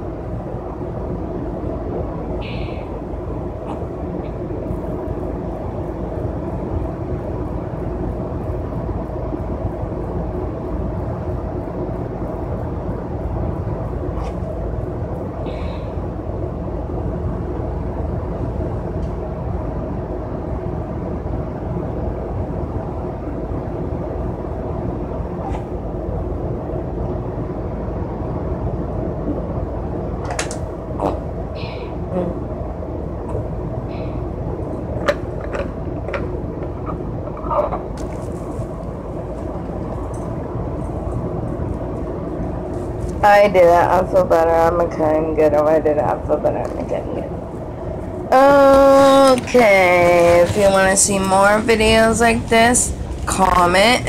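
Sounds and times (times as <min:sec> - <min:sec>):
constant hum: 0:00.0 - 0:54.0
vehicle cabin rumble: 0:00.0 - 0:54.0
steady tones: 0:30.7 - 0:54.0.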